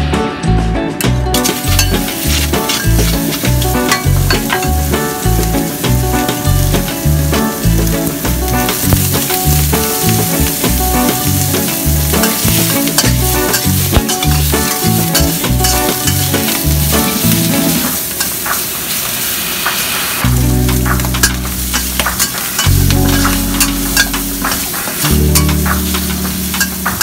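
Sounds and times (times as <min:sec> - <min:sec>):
background music with steady beat: 0:00.0 - 0:18.0
spatula scraping wok: 0:01.3 - 0:27.0
meat sizzling in oil: 0:01.4 - 0:27.0.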